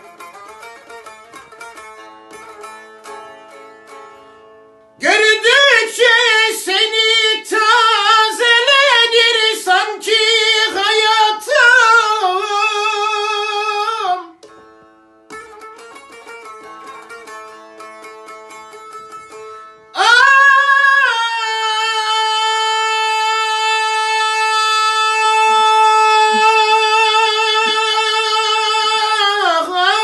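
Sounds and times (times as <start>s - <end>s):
long-necked lute plucked: 0.0s - 5.0s, 12.3s - 20.0s.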